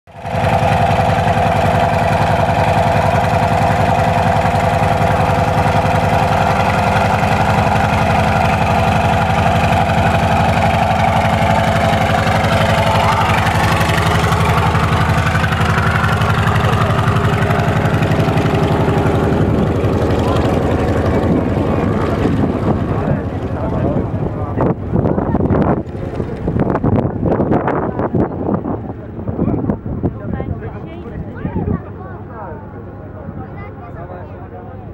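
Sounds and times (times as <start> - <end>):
radial engine idling: 0.1 - 28.0.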